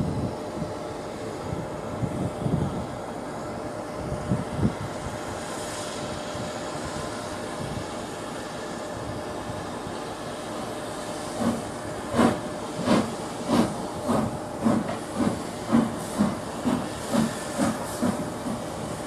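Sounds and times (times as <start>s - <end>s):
steam hissing: 4.2s - 19.0s
steam locomotive exhaust chuffs: 4.5s - 19.0s.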